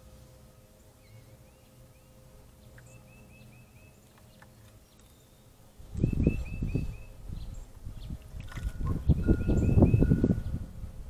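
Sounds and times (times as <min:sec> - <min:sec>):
faint bird chirping: 0:00.3 - 0:10.7
bird splashing in water: 0:08.2 - 0:09.0.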